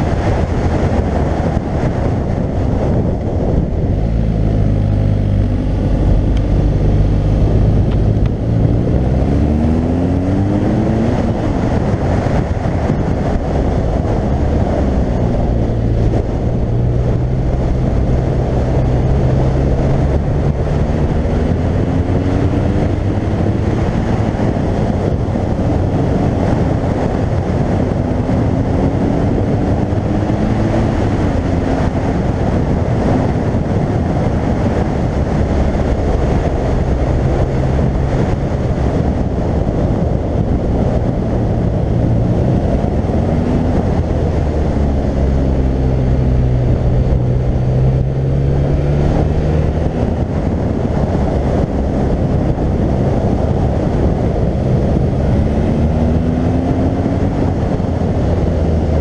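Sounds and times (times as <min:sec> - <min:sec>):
motorcycle engine revving: 0:00.0 - 0:59.0
wind rushing: 0:00.0 - 0:59.0.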